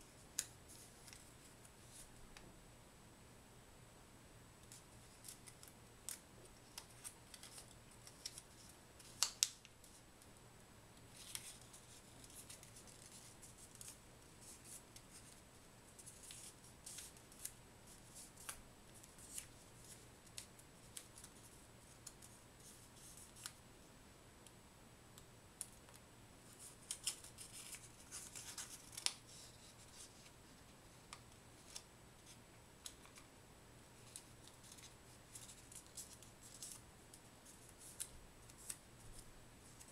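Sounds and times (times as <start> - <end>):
paper crinkling and rustling: 4.7 - 10.0, 11.1 - 23.6, 26.5 - 30.4, 34.0 - 39.9
paper snapping: 9.0 - 9.6.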